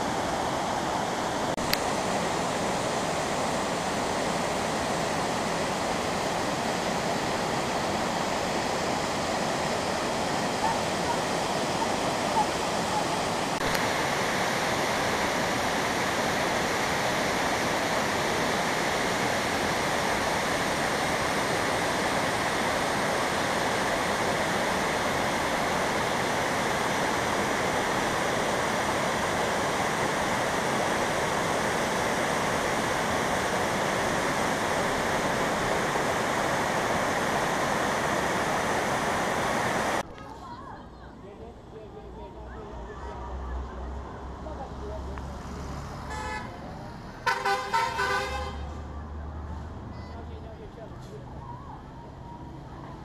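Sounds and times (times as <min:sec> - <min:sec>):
waterfall rushing: 0:00.0 - 0:40.0.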